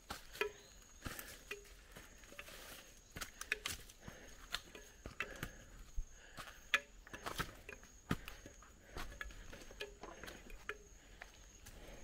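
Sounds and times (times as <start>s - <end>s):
light clicks and pattering taps: 3.2s - 11.9s.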